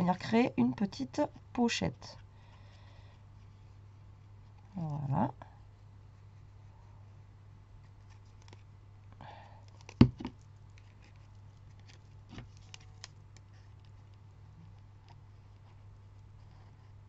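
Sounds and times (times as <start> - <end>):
low steady hum: 0.0 - 17.0
paper rustling and clicking: 9.7 - 14.2
plastic bottle knocking on mat: 10.0 - 10.4.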